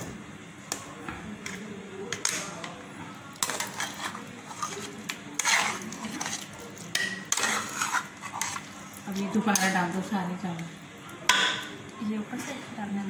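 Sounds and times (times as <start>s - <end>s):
metal ladle scraping pots: 3.4s - 8.7s.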